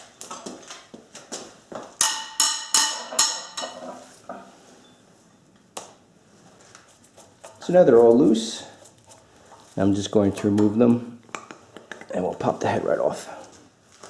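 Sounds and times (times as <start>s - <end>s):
tools clinking metal on metal: 2.0s - 4.0s.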